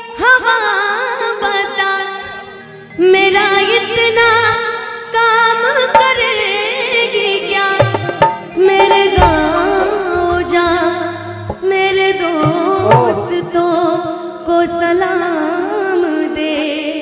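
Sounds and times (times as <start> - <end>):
woman singing into microphone: 0.0 - 17.0
instrumental accompaniment: 1.8 - 14.6
drum strokes: 7.8 - 13.6.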